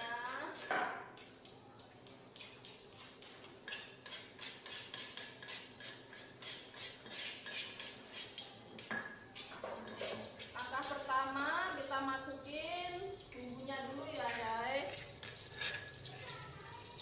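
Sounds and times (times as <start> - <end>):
pestle grinding in stone mortar: 2.4 - 8.6.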